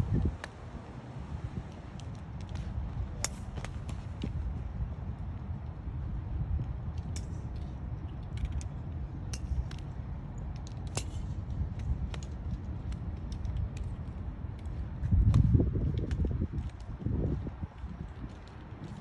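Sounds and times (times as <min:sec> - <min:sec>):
wind rumbling on microphone: 0:00.0 - 0:19.0
golf clubs striking balls: 0:06.9 - 0:09.9, 0:10.5 - 0:13.9.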